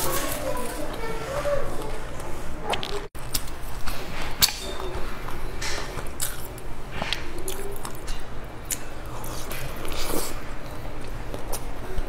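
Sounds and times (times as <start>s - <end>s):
chewing with wet mouth clicks: 2.7s - 12.0s.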